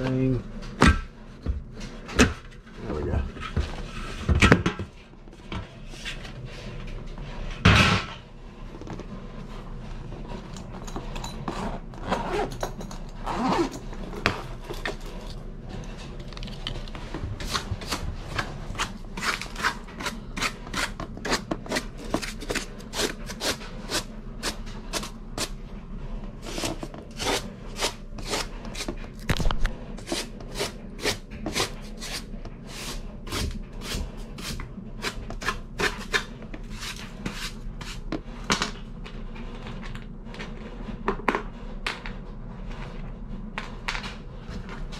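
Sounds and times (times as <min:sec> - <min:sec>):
scraper scraping wood: 0:17.4 - 0:25.5, 0:26.4 - 0:29.2, 0:30.0 - 0:38.0.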